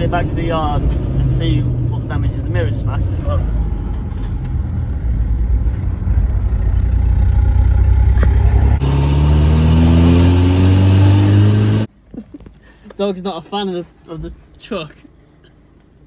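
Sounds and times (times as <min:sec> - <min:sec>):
car engine and loud exhaust: 0:00.0 - 0:11.9.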